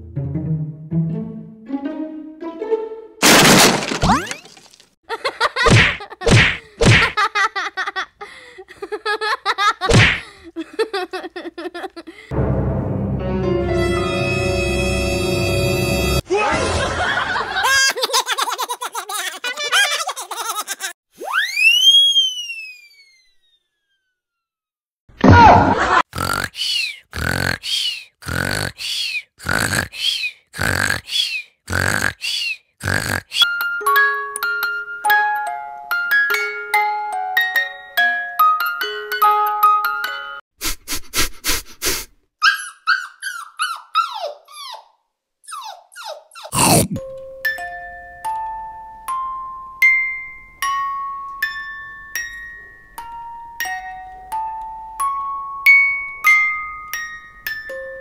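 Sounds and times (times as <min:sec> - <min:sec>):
light chime music: 0:33.5 - 0:40.4, 0:47.0 - 0:58.0
dog whining: 0:42.4 - 0:46.6.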